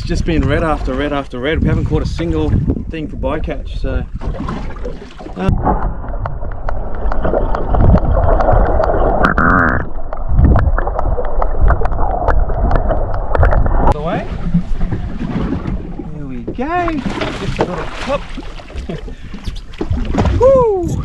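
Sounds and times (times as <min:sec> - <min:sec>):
muffled underwater rushing: 0:00.0 - 0:21.0
wind: 0:00.0 - 0:21.0
underwater clicks and ticks: 0:04.8 - 0:14.9.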